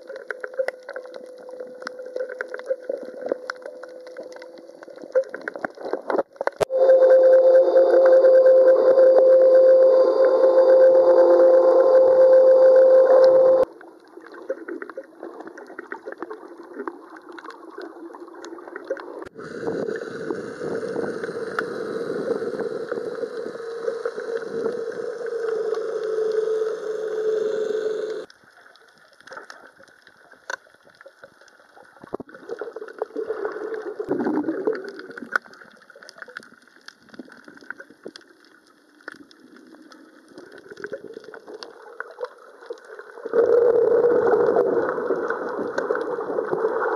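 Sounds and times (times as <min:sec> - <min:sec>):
underwater rushing and gurgling: 0:00.0 - 0:46.9
electric motor humming underwater: 0:19.4 - 0:28.3.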